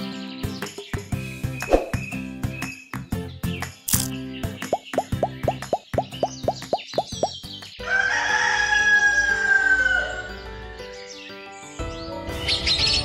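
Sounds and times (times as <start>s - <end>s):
light background music: 0.0s - 13.0s
rooster crowing: 7.8s - 10.3s.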